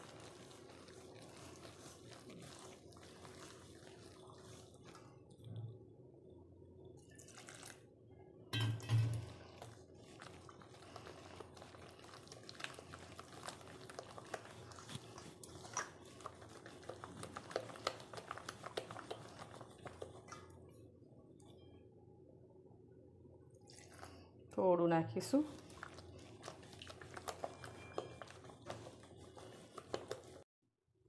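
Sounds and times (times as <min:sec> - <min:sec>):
hand squelching batter in bowl: 0:00.0 - 0:06.1, 0:07.1 - 0:07.9, 0:08.8 - 0:20.7, 0:25.2 - 0:30.5.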